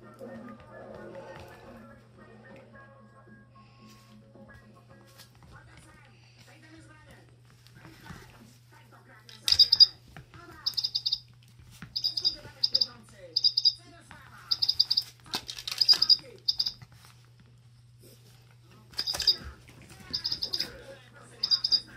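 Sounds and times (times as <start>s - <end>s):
toy chick electronic peeps: 9.5s - 9.9s, 10.6s - 11.2s, 12.0s - 13.8s, 14.5s - 15.1s, 15.7s - 16.8s, 20.1s - 20.7s, 21.4s - 21.9s.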